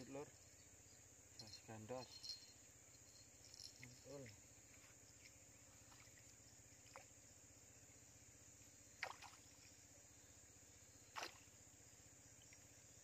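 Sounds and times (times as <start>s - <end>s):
insects droning: 0.0s - 13.0s
water splashes: 3.8s - 7.2s, 9.0s - 9.8s, 11.1s - 11.6s.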